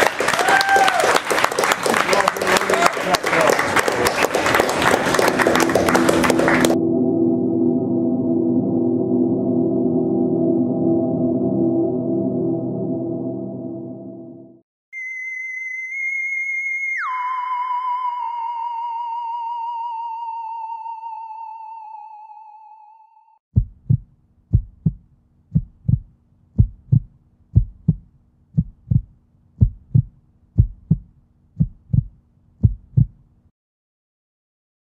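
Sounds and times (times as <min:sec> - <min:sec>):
wavering electronic tone: 0:06.8 - 0:23.4
heartbeat thumps: 0:23.5 - 0:33.2.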